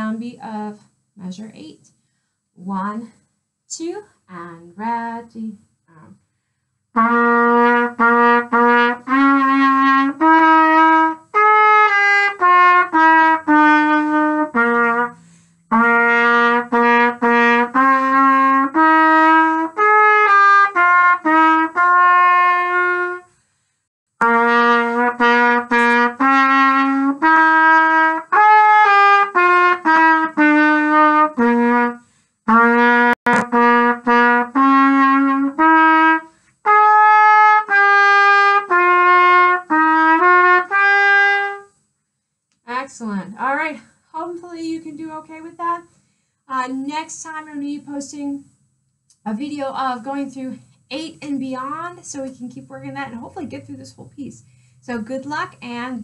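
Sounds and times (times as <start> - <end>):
solo trumpet melody: 6.9 - 23.3, 24.2 - 41.7.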